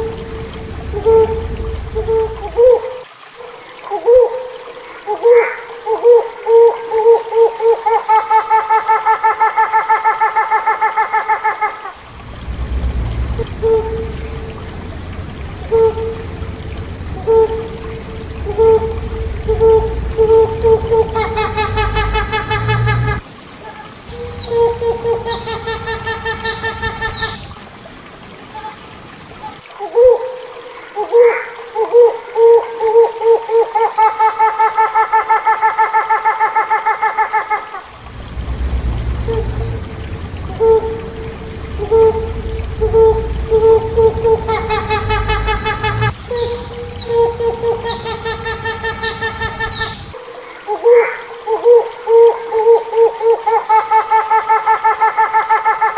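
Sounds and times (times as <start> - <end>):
high falling chirps: 0.0 - 2.7, 12.1 - 29.6, 38.1 - 50.2
hornbill calling: 0.0 - 2.8, 12.1 - 23.2, 24.1 - 27.6, 38.5 - 50.2
loud hooting bird notes: 0.0 - 2.9, 12.1 - 27.6, 38.0 - 50.2.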